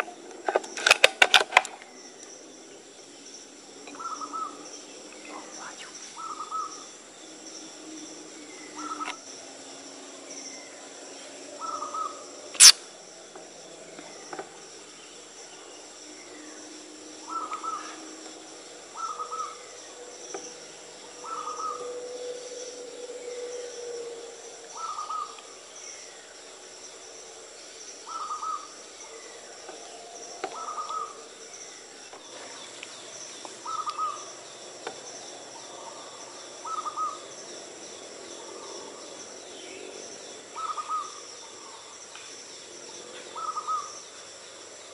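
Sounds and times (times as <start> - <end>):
high-pitched insect drone: 1.9 - 44.9
short bird calls: 11.6 - 12.8
sharp crack: 12.6 - 12.8.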